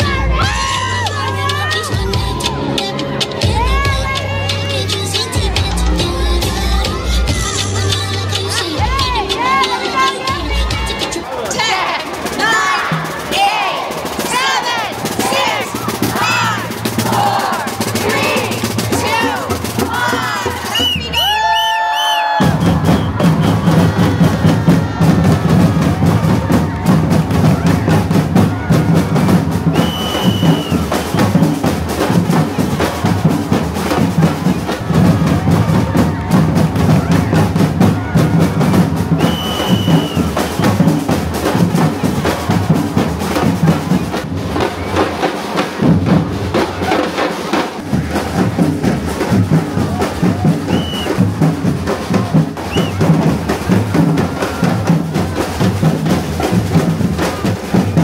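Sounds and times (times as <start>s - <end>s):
drum line playing: 0.0s - 58.0s
whistle blasts: 20.6s - 23.9s, 29.6s - 31.4s, 39.1s - 41.1s, 50.6s - 51.3s, 52.7s - 53.1s.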